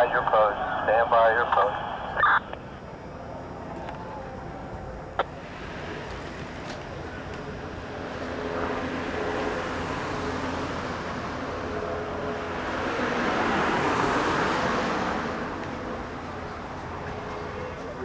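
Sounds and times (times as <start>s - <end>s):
steady road hum: 0.0s - 18.0s
vehicle passing close: 5.4s - 17.4s.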